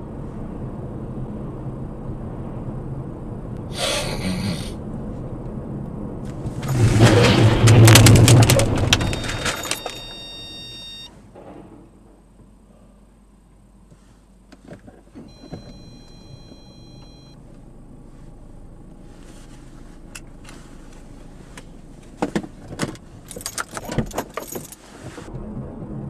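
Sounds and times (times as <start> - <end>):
low rumble inside car: 0.0 - 26.0
sharp clicks and rattles: 6.2 - 10.2, 22.1 - 24.8
short electronic beep: 9.0 - 11.1, 15.3 - 17.4.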